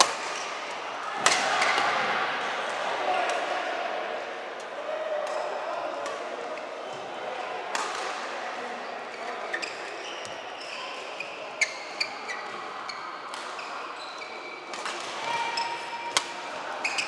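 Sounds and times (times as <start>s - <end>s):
voices in background: 0.0s - 17.0s
rackets hitting shuttlecock: 1.2s - 1.9s, 7.7s - 8.2s, 16.1s - 16.4s
shoes squeaking on court: 9.1s - 16.0s.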